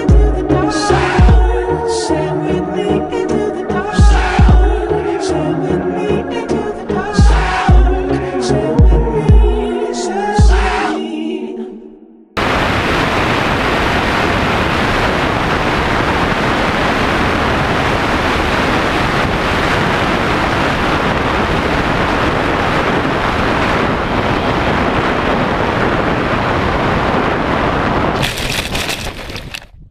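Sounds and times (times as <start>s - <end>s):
wind rushing over microphone: 12.4s - 29.9s.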